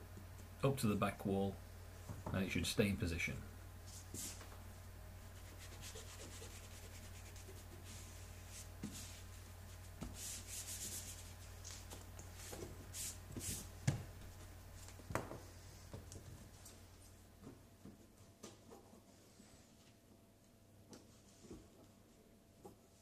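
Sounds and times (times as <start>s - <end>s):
hand rubbing rubber membrane: 3.9s - 4.6s, 5.2s - 13.8s.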